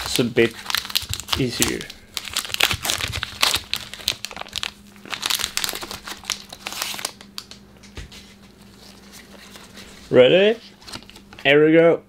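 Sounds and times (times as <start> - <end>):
foil wrapper crinkling: 0.0 - 7.6
foil wrapper tearing: 0.0 - 7.6.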